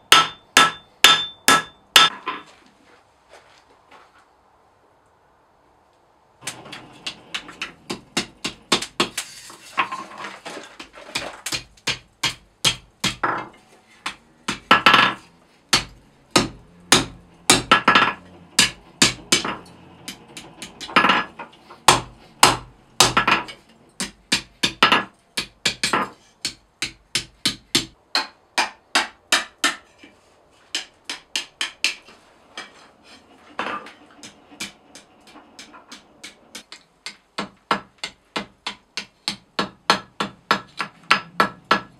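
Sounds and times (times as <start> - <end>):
hammer striking steel on anvil: 0.1 - 2.4, 11.5 - 21.3, 33.6 - 41.9.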